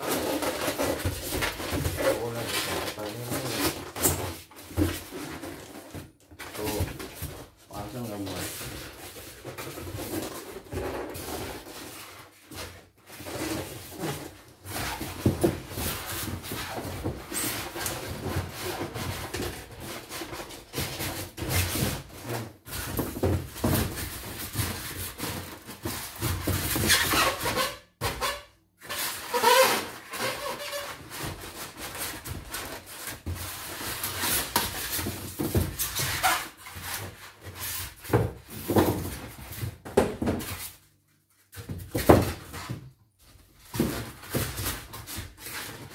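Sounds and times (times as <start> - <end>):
polystyrene squeaks: 0.0 - 5.9, 10.1 - 19.3, 24.7 - 38.0
polystyrene scraping cardboard: 0.0 - 39.8.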